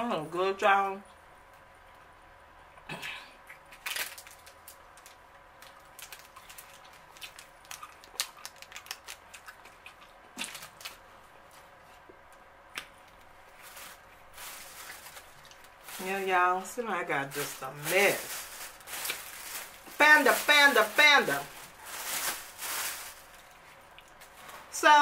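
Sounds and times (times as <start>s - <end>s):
plastic wrappings crinkling: 3.7s - 11.6s, 13.0s - 24.8s.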